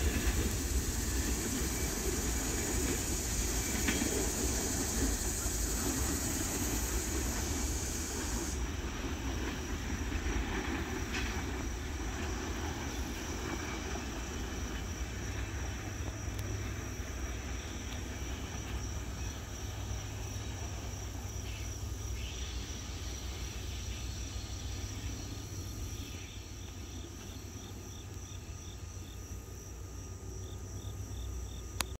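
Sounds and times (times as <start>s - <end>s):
insects trilling: 0.0s - 32.0s
low train rumble: 0.0s - 32.0s
rhythmic insect chirp: 0.0s - 32.0s.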